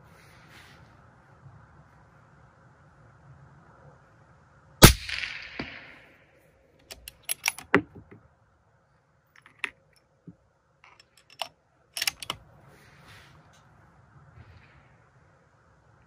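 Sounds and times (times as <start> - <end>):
suppressed rifle shot: 4.8 - 6.1
rifle bolt clicking: 10.9 - 12.4.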